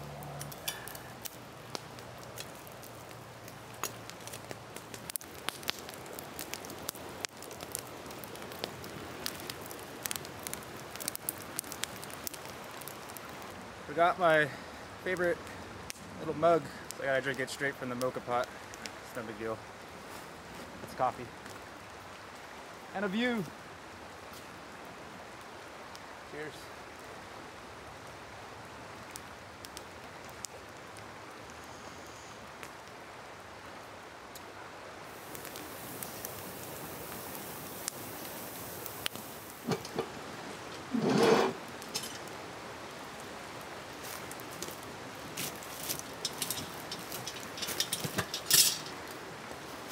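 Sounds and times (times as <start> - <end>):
campfire crackling: 0.0 - 49.9
river water flowing: 33.2 - 49.9.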